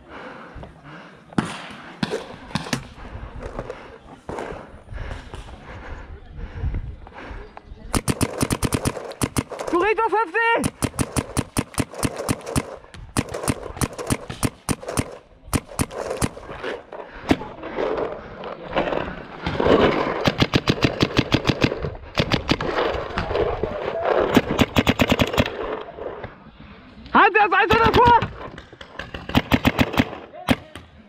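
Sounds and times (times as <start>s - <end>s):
paintball markers firing: 7.9s - 10.0s, 10.6s - 17.6s, 20.1s - 23.5s, 24.2s - 25.8s, 27.7s - 31.0s.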